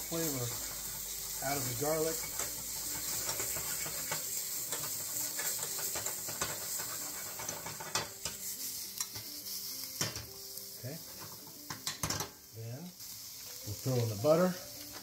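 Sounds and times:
garlic sizzling in oil: 0.0s - 15.0s
utensil scraping a pan: 0.1s - 8.4s.

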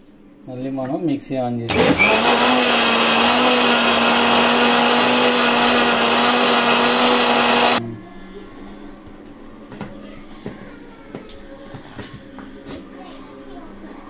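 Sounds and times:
mixer grinder motor running: 1.7s - 7.8s.

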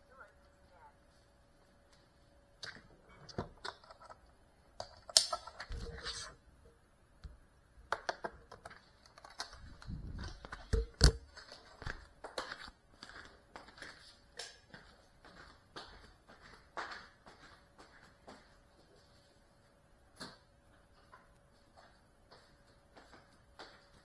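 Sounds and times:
camera handling clicks and rustling: 8.0s - 11.2s
footsteps: 9.6s - 24.0s.

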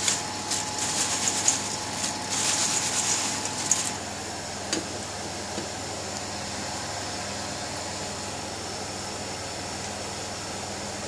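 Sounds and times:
fried chips rustling in colander: 0.0s - 4.2s
steady background hum: 0.0s - 11.0s.

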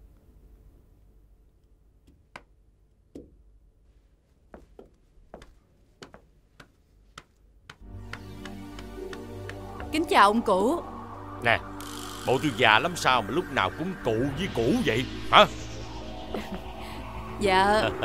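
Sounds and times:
faint footsteps: 3.8s - 10.0s.

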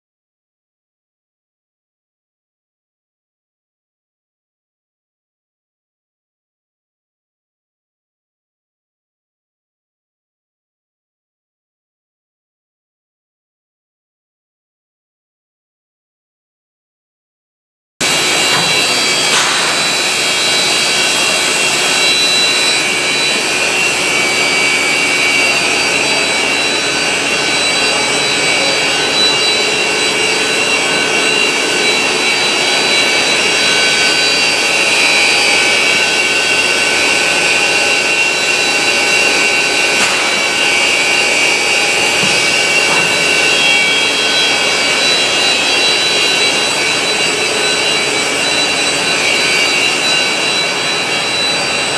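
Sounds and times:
high-pitched machine whines: 18.0s - 51.9s
industrial machinery running: 18.0s - 51.9s.

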